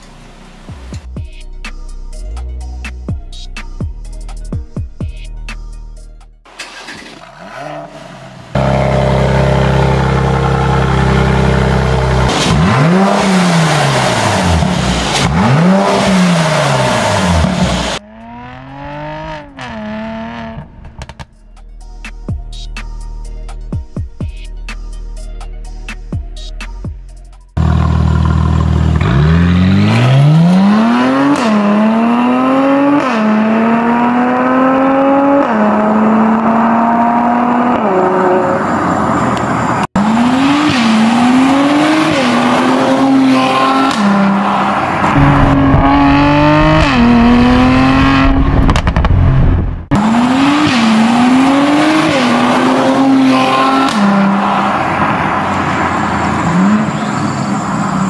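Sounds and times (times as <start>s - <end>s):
car engine accelerating hard: 6.7s - 20.6s, 27.6s - 58.0s.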